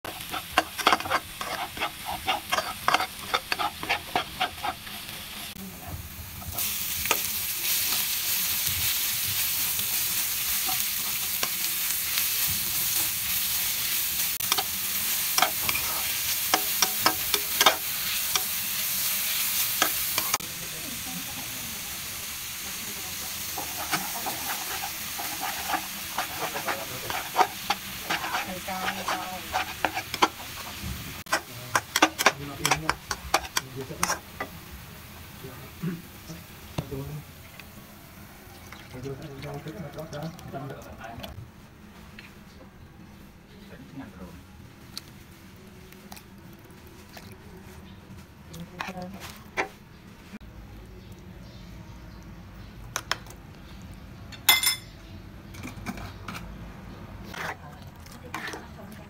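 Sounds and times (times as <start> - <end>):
spatula scraping a wok: 0.0 - 5.6, 6.4 - 20.4, 23.1 - 34.6, 57.2 - 58.8
food sizzling in oil: 0.0 - 40.8.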